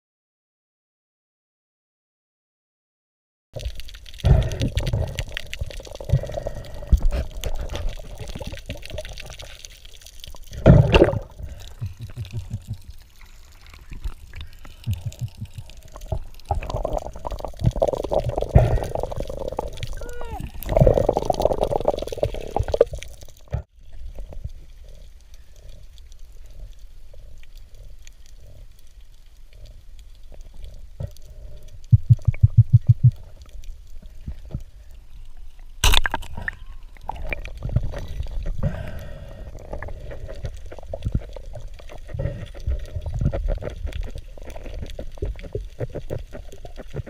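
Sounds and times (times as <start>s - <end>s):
underwater rumble: 3.6s - 47.0s
low thumps: 32.0s - 33.2s.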